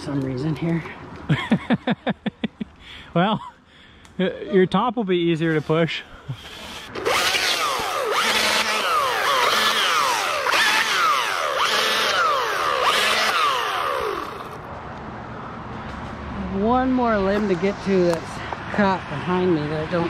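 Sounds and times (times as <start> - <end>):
chainsaw revving: 6.4 - 14.6.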